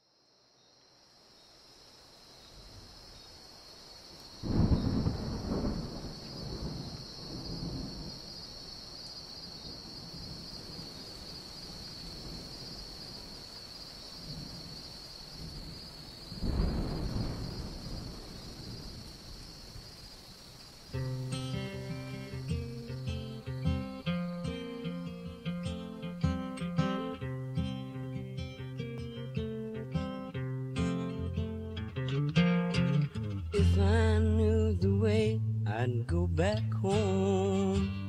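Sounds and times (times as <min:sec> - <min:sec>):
steady rain: 0:01.9 - 0:32.0
thunder rolling: 0:04.4 - 0:08.2, 0:15.4 - 0:19.9.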